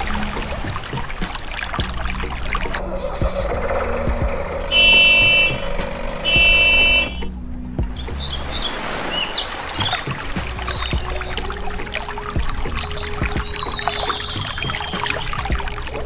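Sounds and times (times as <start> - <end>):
vehicle horn honks: 4.7 - 7.3
high bird chirps: 12.4 - 15.5.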